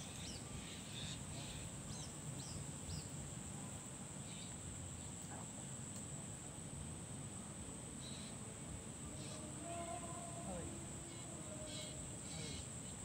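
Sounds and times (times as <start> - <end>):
high-pitched insect drone: 8.0 - 13.0.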